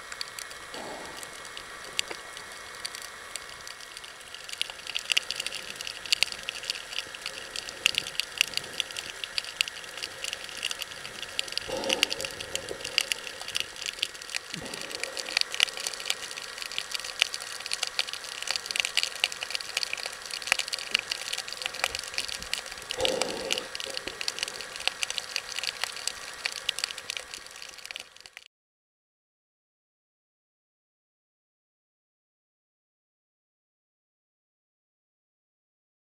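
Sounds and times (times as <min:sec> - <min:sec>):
underwater crackle of clicks: 0:00.0 - 0:28.5.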